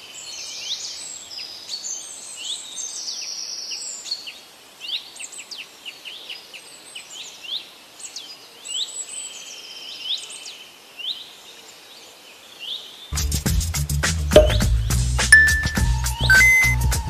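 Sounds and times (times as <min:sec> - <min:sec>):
small birds chirping: 0:00.0 - 0:13.1, 0:15.4 - 0:16.9
bird trills: 0:15.4 - 0:16.8.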